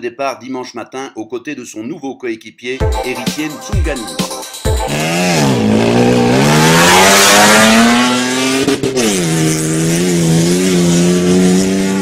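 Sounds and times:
engine revving on open exhaust: 4.9s - 12.0s.

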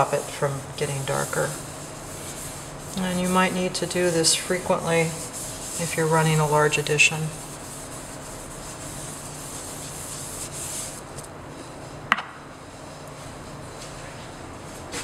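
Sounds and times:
sponge scrubbing a metal plate: 0.0s - 12.0s.

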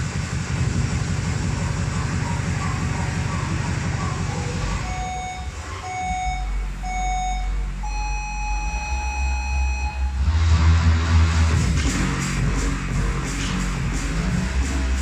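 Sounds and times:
deep bass music beat: 0.0s - 15.0s
electronic countdown beeps: 4.5s - 10.3s.

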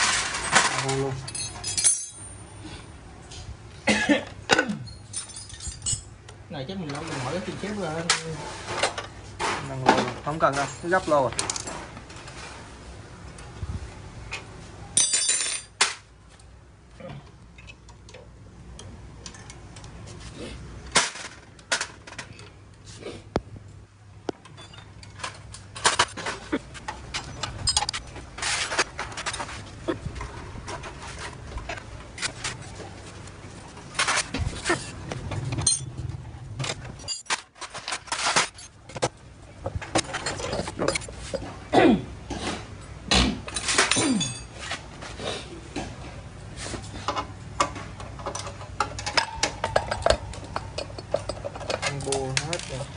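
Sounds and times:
metal bolts clinking on tray: 0.0s - 2.4s
bolts and tools clinking on metal: 0.0s - 2.6s, 4.4s - 7.2s, 14.3s - 16.1s, 24.3s - 32.6s, 35.3s - 41.5s, 43.5s - 44.8s, 47.1s - 52.9s.

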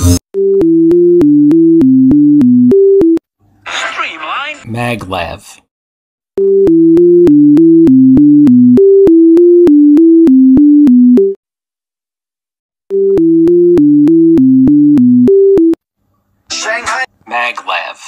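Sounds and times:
synthesizer tune with clicks: 0.4s - 3.2s, 6.4s - 11.4s, 12.9s - 15.8s.

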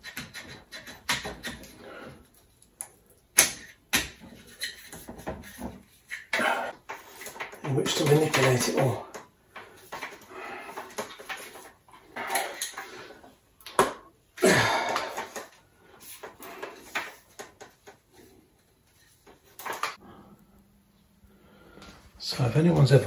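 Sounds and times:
strained breathing: 1.6s - 2.4s, 9.0s - 13.5s, 14.4s - 17.4s, 19.9s - 22.2s.

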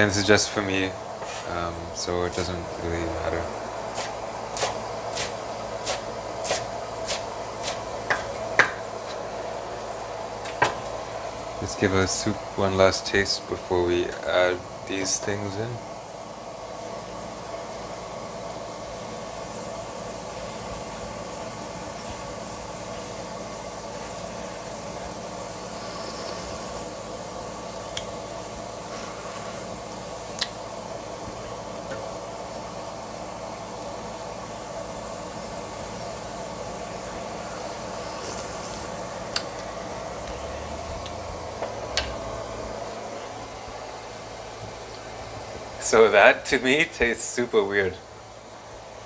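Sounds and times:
soup boiling in a pot: 3.5s - 11.6s, 15.8s - 45.8s
knife chopping on wooden board: 4.0s - 8.8s.

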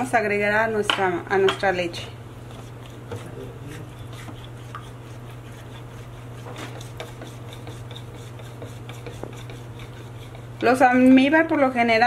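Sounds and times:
spoon stirring in ceramic cup: 2.4s - 11.2s.

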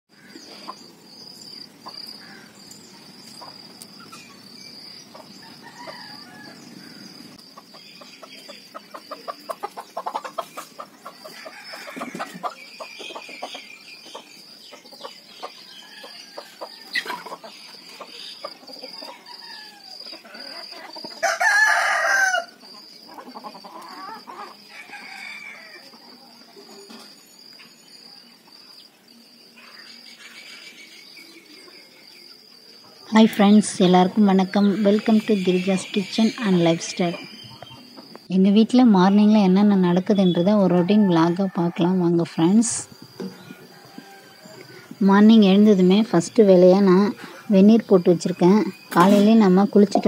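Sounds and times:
chickens clucking: 0.3s - 28.8s, 29.5s - 50.0s
rooster crowing: 5.3s - 7.4s, 11.1s - 12.6s, 15.7s - 17.1s, 18.9s - 26.5s, 40.6s - 42.4s, 43.1s - 45.0s.

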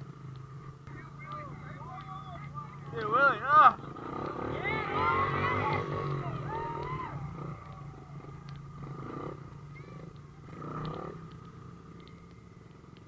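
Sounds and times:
engine idling: 0.0s - 13.0s
faint voices: 0.9s - 11.2s.

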